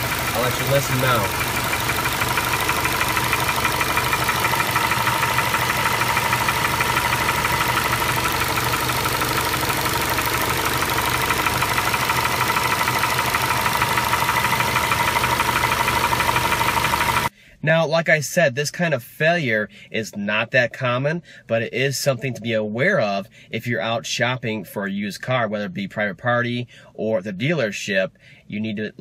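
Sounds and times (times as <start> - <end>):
car engine idling: 0.0 - 17.3
rapid tapping knock from engine: 1.3 - 17.3.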